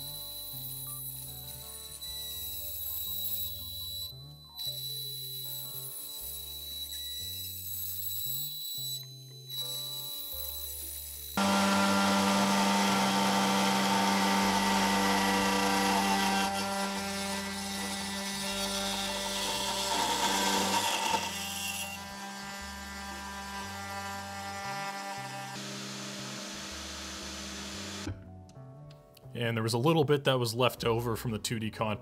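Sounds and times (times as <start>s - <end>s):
router spindle cutting metal: 4.6s - 28.1s.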